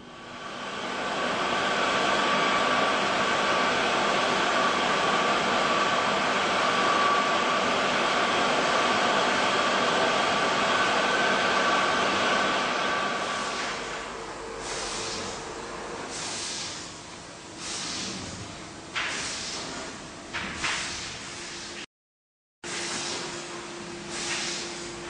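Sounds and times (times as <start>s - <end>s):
metal lathe running: 0.8s - 14.6s.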